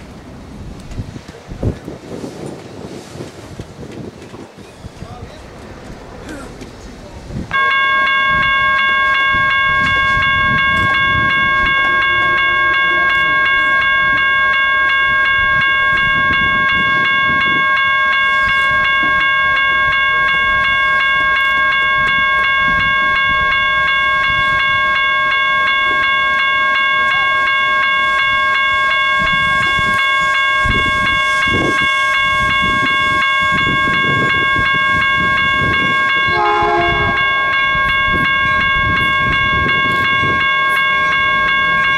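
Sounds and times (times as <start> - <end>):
diesel locomotive rumbling: 0.0 - 41.9
locomotive horn blast: 7.5 - 20.2, 25.4 - 41.8
crossing warning bell ringing: 7.5 - 41.9.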